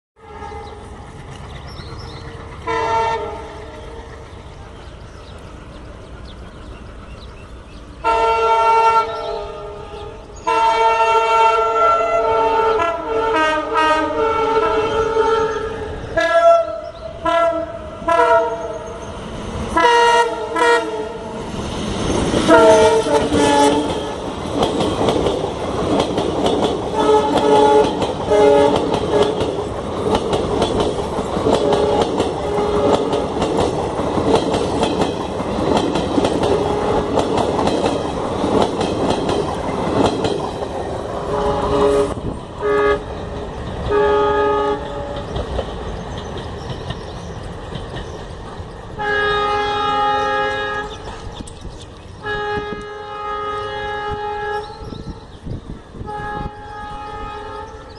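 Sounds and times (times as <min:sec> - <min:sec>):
train rolling rumble: 0:00.2 - 0:57.9
locomotive horn blasts: 0:02.6 - 0:04.0, 0:08.0 - 0:19.0, 0:19.8 - 0:21.3, 0:22.4 - 0:24.3, 0:26.9 - 0:29.4, 0:31.6 - 0:33.2, 0:41.2 - 0:43.2, 0:43.9 - 0:45.2, 0:49.0 - 0:51.0, 0:52.2 - 0:55.2, 0:56.0 - 0:57.9
wheels clattering over rail joints: 0:21.5 - 0:41.3, 0:44.8 - 0:49.0.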